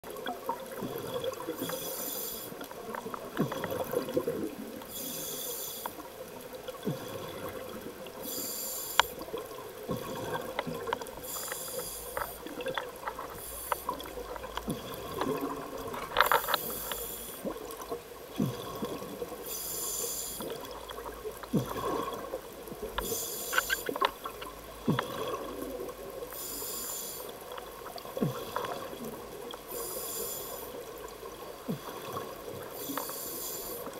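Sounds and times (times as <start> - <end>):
exhaled bubbles hissing: 0.1 - 33.9
bubbly crackling and clicks: 2.5 - 5.0, 8.9 - 19.4, 20.4 - 26.5.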